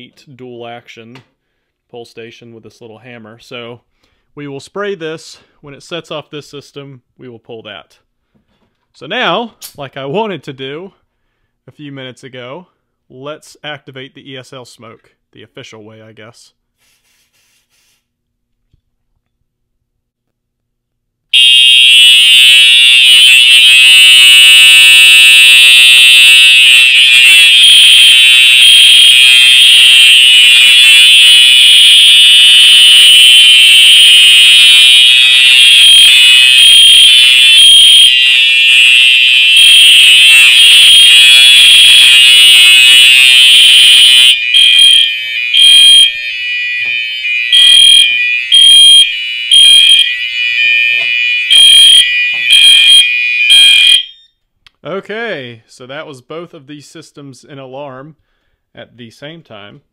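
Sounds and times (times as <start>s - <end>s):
fire alarm horns: 21.3s - 54.4s.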